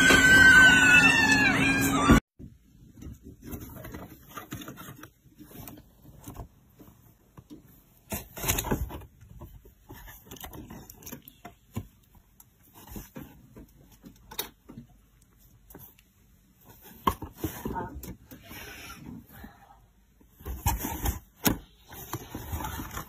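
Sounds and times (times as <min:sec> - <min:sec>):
cat rustling in cardboard box: 0:20.2 - 0:23.0.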